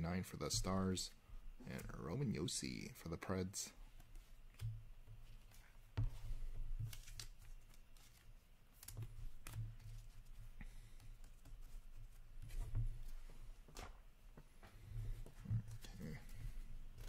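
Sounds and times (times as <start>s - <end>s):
cards flicking and sliding: 5.4s - 10.0s.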